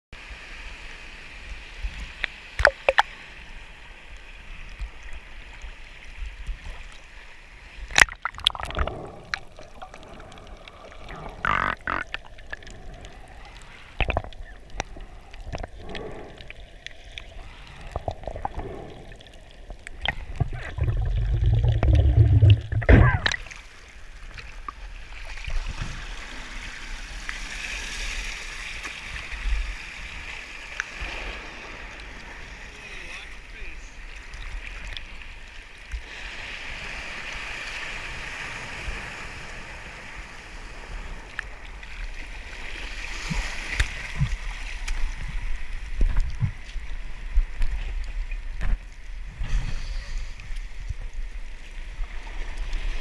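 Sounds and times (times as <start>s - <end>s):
muffled underwater bubbling: 8.0s - 23.5s.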